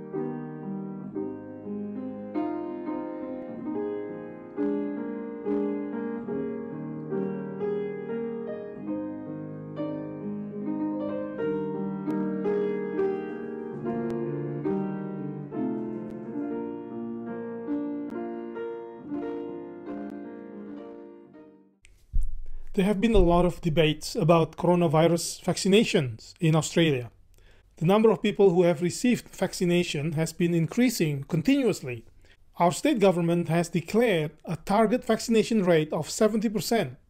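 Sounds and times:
slow piano melody: 0:00.0 - 0:23.9.

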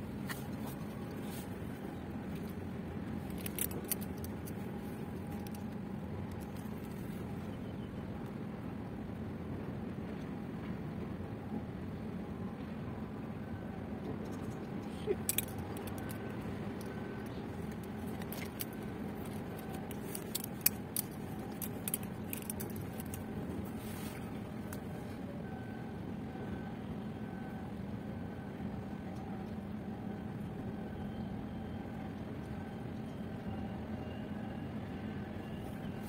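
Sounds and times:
faint hum: 0:00.0 - 0:36.0
low outdoor rumble: 0:00.0 - 0:36.0
light clicks and ticks: 0:00.3 - 0:07.3, 0:14.0 - 0:24.8.

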